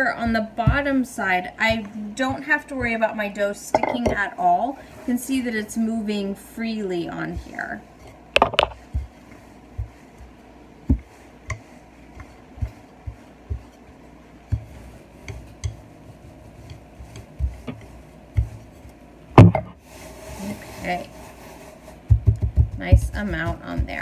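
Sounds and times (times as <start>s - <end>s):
rolling pin on pastry: 0.0s - 24.0s
loud knock: 19.4s - 19.7s.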